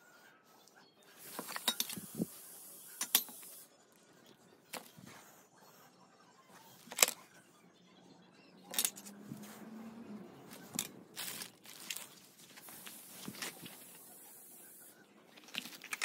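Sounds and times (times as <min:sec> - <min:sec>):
metal parts clinking: 0:01.3 - 0:02.2, 0:03.0 - 0:03.5, 0:06.8 - 0:07.2, 0:08.7 - 0:09.2, 0:10.5 - 0:13.9, 0:15.4 - 0:16.0
plastic wrapping rustling: 0:10.5 - 0:14.1, 0:15.3 - 0:16.0.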